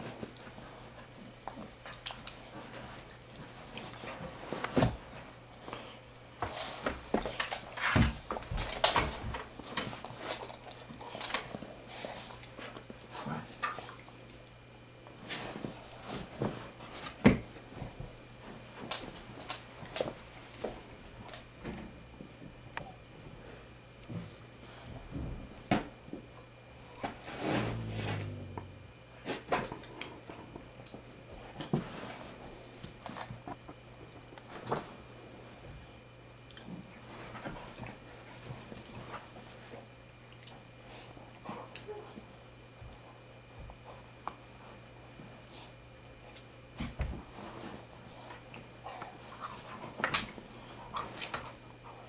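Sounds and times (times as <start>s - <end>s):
dog growling: 27.2s - 29.8s.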